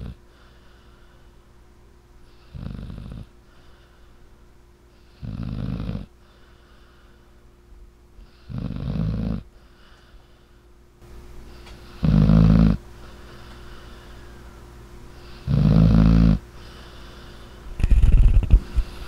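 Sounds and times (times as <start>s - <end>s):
dog snoring: 0.0s - 0.2s, 2.3s - 3.3s, 5.0s - 6.1s, 8.2s - 9.5s, 11.9s - 12.8s, 15.2s - 16.4s.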